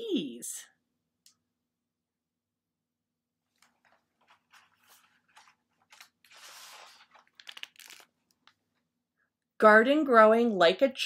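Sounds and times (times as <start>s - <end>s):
paper page rustling: 3.5s - 8.6s
page turning swish: 3.6s - 8.1s.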